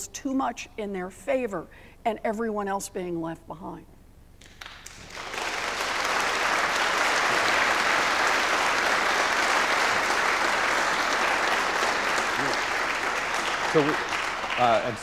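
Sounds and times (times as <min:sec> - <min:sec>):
audience clapping: 0:04.4 - 0:15.0.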